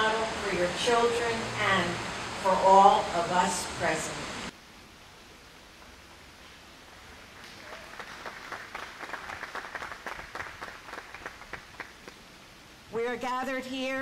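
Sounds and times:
crowd applauding: 7.4 - 12.2.

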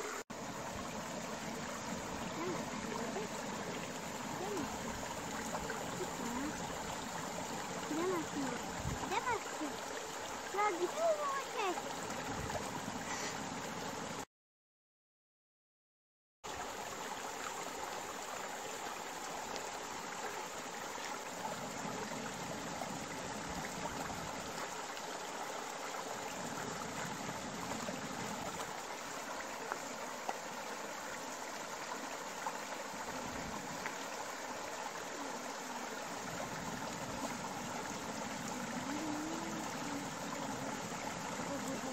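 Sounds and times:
creek trickling: 0.0 - 14.2, 16.5 - 41.9.

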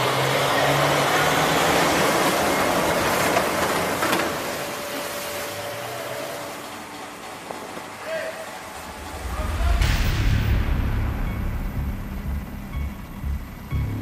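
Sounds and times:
vehicle engines running: 0.0 - 14.0.

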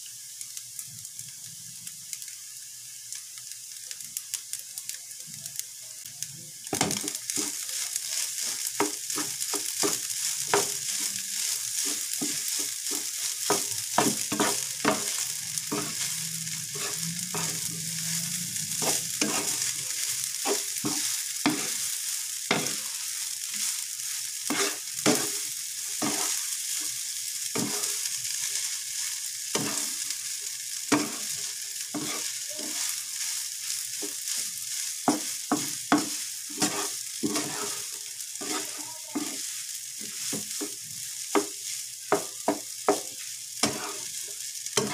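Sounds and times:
rice sizzling in a pan: 0.0 - 44.9
spatula scraping and knocking pan: 6.7 - 22.9, 24.4 - 28.6, 29.5 - 30.1, 30.9 - 33.3, 34.0 - 44.9.

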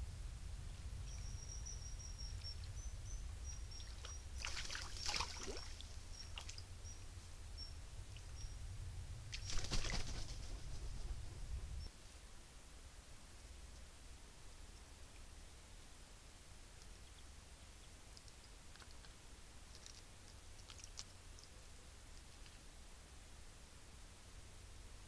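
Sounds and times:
steady low rumble: 0.0 - 11.9
faint high whine: 0.0 - 17.9
splashing in shallow stream: 3.8 - 6.6.

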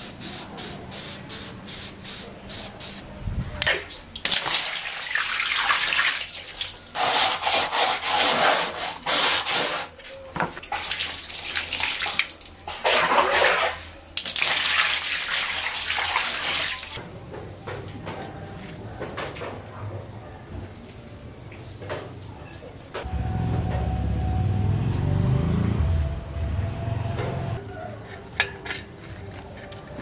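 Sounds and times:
scrubbing tyre on wet floor: 4.6 - 10.0.

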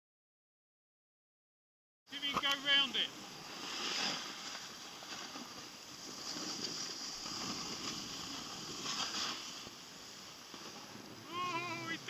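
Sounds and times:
snowboards scraping over snow: 2.2 - 12.0.

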